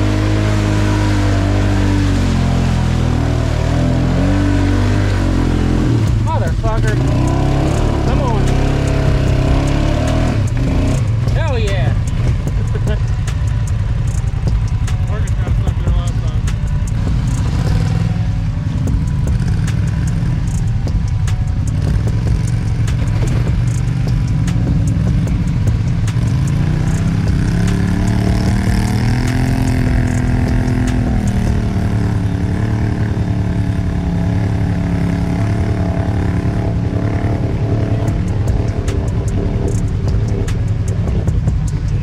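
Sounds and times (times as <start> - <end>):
atv engine running: 0.0 - 42.0
ticks and clatter: 10.1 - 18.1, 18.8 - 31.5, 38.0 - 42.0.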